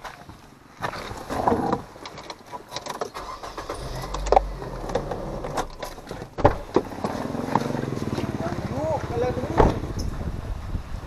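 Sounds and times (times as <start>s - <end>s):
low car rumble: 3.2s - 11.0s
loud thud: 5.5s - 6.9s.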